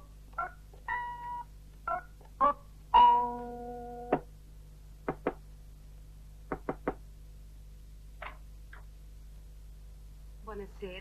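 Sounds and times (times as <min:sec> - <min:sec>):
knocking on wooden door: 0:05.1 - 0:05.4, 0:06.5 - 0:07.0.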